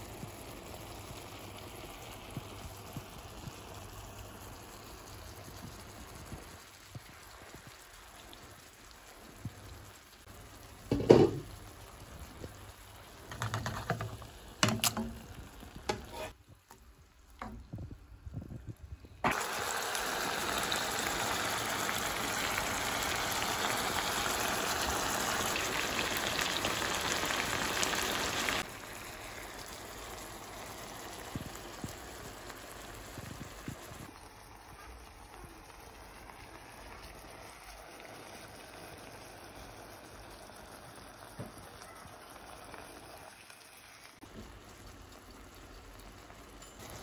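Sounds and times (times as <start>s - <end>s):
fish sizzling in a pan: 0.0s - 17.8s, 19.2s - 47.0s
knock: 10.9s - 11.4s.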